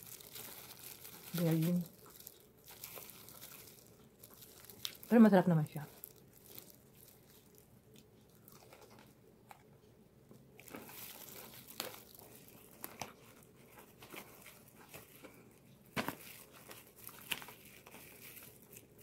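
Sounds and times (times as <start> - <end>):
plastic gloves crinkling: 0.0 - 9.8, 10.4 - 19.0.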